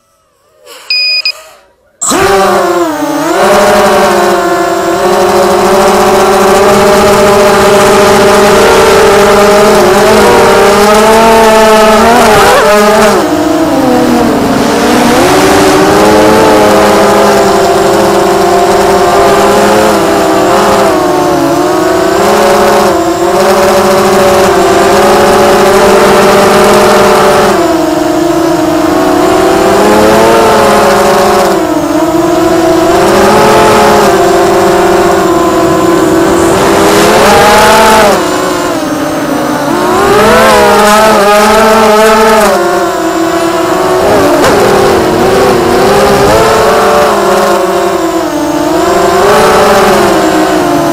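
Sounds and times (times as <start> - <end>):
quadcopter motors whining: 0.0 - 50.9.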